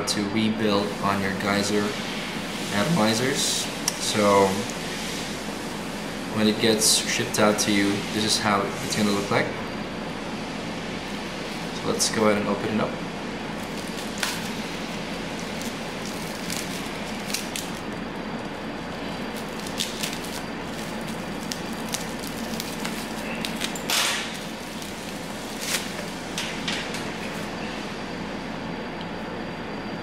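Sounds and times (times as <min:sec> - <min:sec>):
steady hiss: 0:00.5 - 0:27.6
plastic wrapping crinkling: 0:13.5 - 0:27.5.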